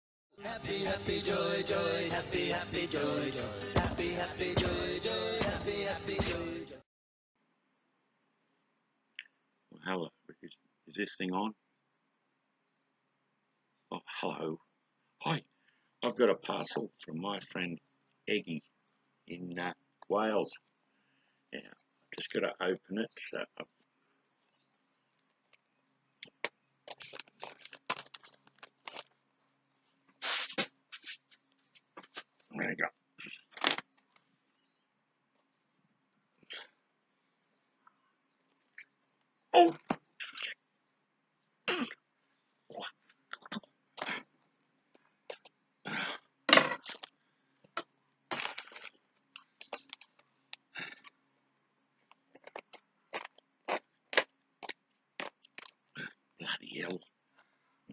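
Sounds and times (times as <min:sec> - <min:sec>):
parcel wrapping tearing: 0:26.8 - 0:29.2, 0:30.2 - 0:31.2, 0:46.7 - 0:47.1, 0:48.3 - 0:50.2, 0:52.3 - 0:55.9
cardboard and plastic tearing: 0:26.9 - 0:29.2, 0:48.3 - 0:50.2.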